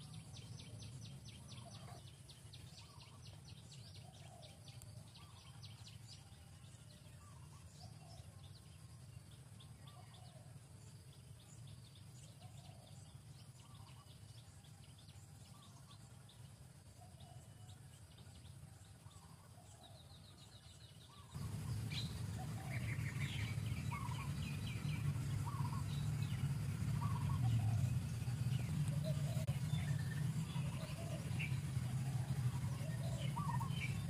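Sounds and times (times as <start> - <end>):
small birds chirping: 0.0 - 34.0
low rumble: 21.4 - 34.0.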